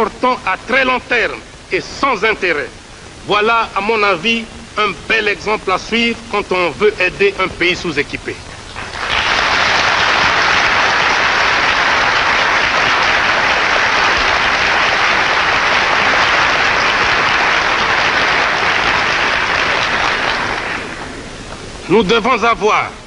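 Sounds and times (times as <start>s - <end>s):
crowd applauding: 8.7s - 21.3s.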